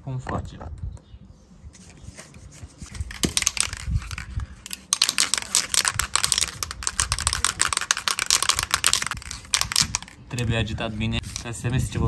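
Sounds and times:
spray can rattling: 0:02.9 - 0:10.6, 0:11.2 - 0:11.6.

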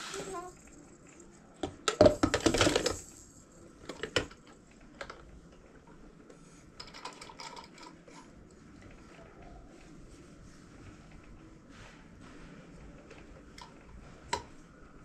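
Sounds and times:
toy parts clicking and rattling: 0:00.0 - 0:05.3, 0:06.8 - 0:08.3.

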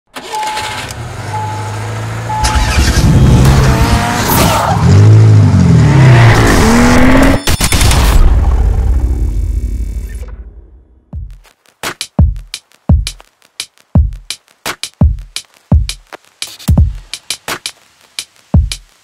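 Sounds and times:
short electronic beeps: 0:00.2 - 0:01.7, 0:02.3 - 0:03.0
engine revving: 0:00.2 - 0:07.5.

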